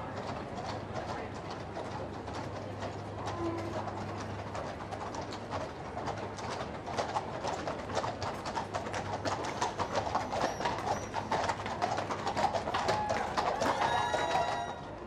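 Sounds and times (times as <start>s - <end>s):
horse hooves on paved road: 0.0s - 15.0s.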